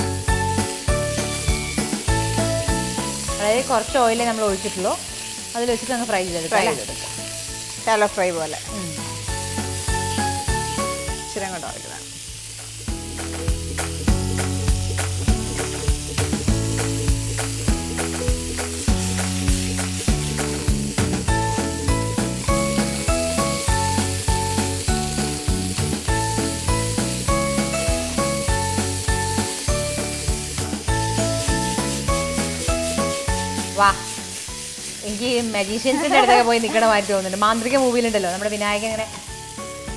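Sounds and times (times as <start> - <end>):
chicken sizzling in frying pan: 0.0 - 39.9
background music with steady beat: 8.6 - 34.8.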